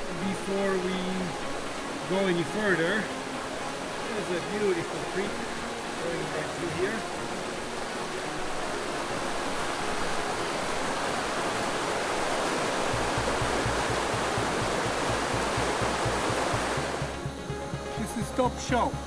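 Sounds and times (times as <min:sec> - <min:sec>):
creek rushing over rocks: 0:00.0 - 0:19.0
low regular pulse: 0:12.7 - 0:19.0.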